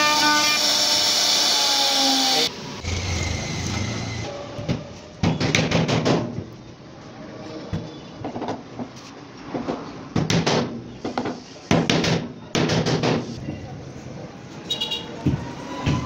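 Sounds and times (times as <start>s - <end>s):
router spindle cutting wood: 0.0s - 4.3s
hammer striking wooden board: 5.2s - 6.4s.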